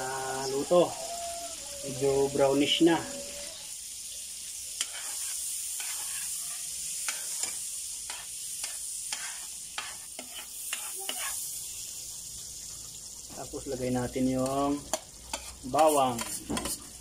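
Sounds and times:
butter sizzling in wok: 0.0s - 17.0s
metal ladle scraping pan: 4.8s - 11.4s, 14.9s - 17.0s.

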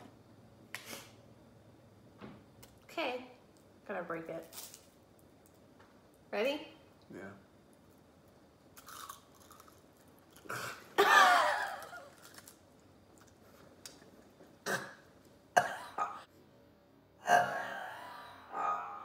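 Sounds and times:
person coughing: 15.6s - 16.2s.

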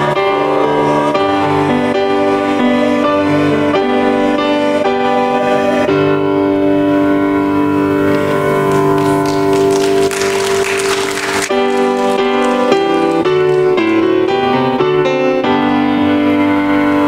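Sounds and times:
grand piano chords: 0.0s - 17.0s
people clapping: 8.1s - 14.1s.

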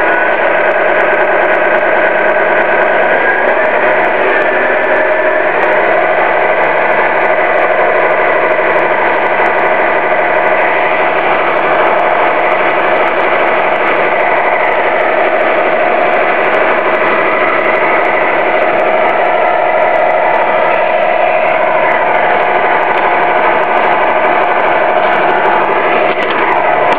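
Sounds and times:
model truck motor running: 0.0s - 26.9s.

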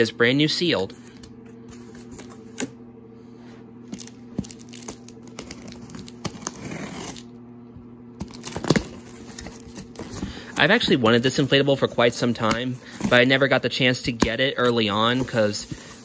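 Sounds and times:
scissors slitting packing tape: 4.6s - 7.3s
cardboard flaps rustling: 8.2s - 16.0s.

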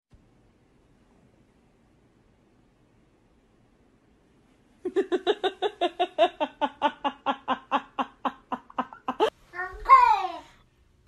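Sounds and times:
person giggling: 4.8s - 9.4s.

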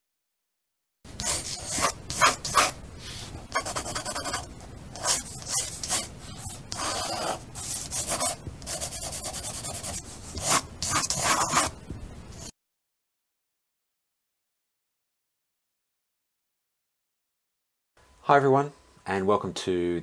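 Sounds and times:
pencil scribbling on paper: 1.2s - 2.8s, 3.5s - 11.8s.

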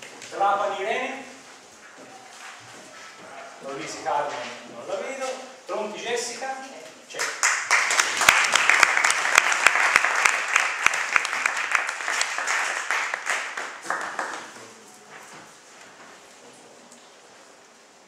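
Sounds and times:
audience applauding: 7.2s - 14.8s.

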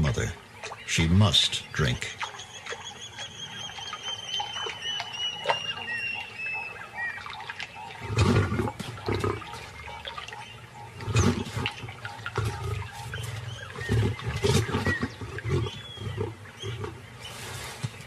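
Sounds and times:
lioness snarling and growling: 8.0s - 10.0s, 10.8s - 17.8s.

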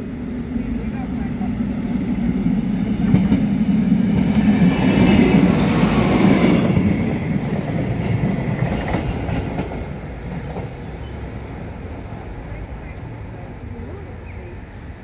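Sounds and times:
wheels clacking over rail joints: 1.8s - 14.0s.

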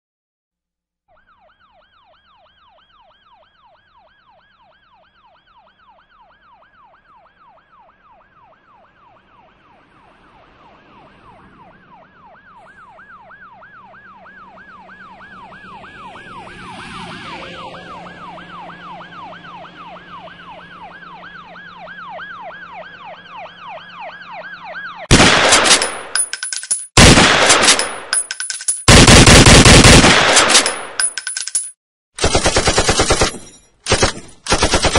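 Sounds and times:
siren yelping: 1.1s - 25.1s
rapid gunfire bursts: 25.1s - 25.9s, 27.0s - 27.9s, 28.8s - 30.8s, 32.2s - 34.9s.

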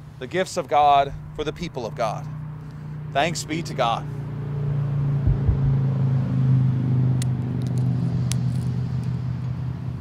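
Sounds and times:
low machine hum: 4.9s - 6.2s.

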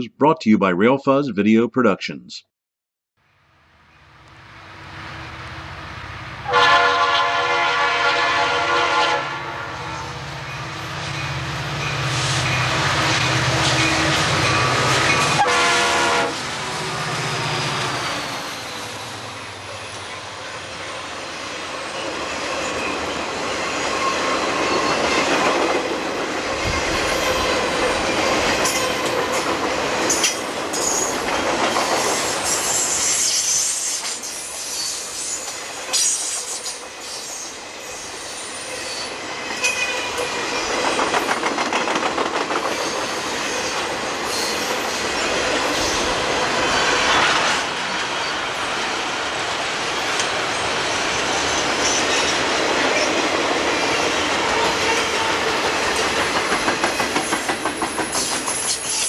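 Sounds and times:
train air horn blasts: 6.4s - 10.1s, 14.6s - 16.4s, 54.6s - 55.5s
train wheels squealing: 16.7s - 25.2s, 30.1s - 31.2s, 31.8s - 41.0s, 42.7s - 46.9s, 56.7s - 59.0s
train wheels clattering over rail joints: 40.7s - 43.2s, 55.4s - 59.0s.

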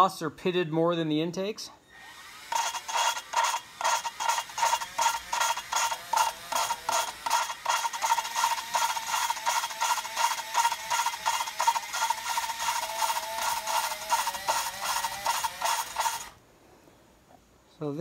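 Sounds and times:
valve lapping grinding scrape: 2.5s - 16.4s.

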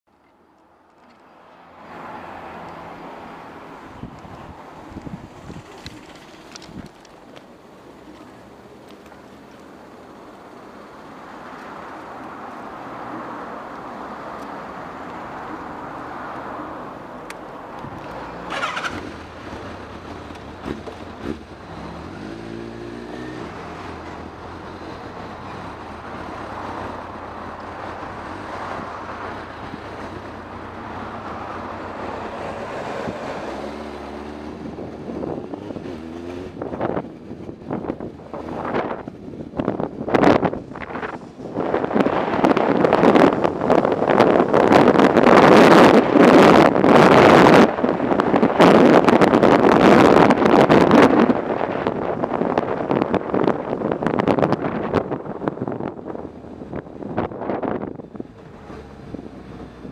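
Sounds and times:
wind buffeting microphone: 3.7s - 7.4s, 17.3s - 59.9s
motorcycle engine revving: 18.0s - 39.2s.

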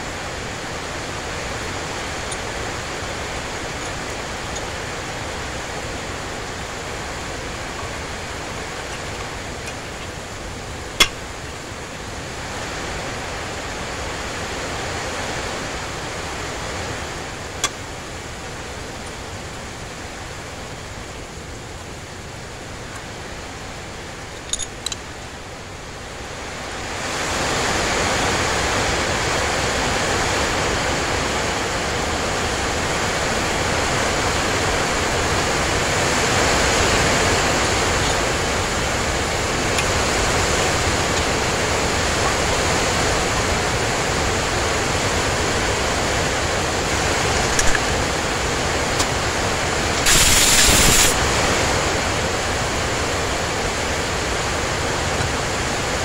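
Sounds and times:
steady rushing noise: 0.0s - 56.0s
burst of noise: 49.9s - 51.4s.

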